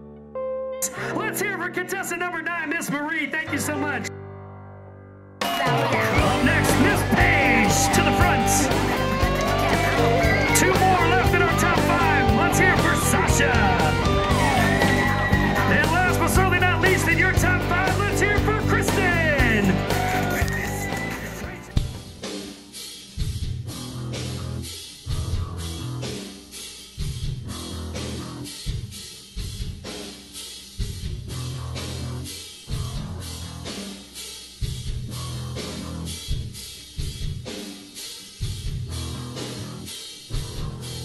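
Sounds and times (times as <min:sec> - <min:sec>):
electric guitar: 0:05.4 - 0:22.0
bass: 0:05.4 - 0:22.3, 0:23.2 - 0:30.1, 0:30.7 - 0:37.6, 0:38.4 - 0:41.0
drum beat: 0:05.4 - 0:23.8.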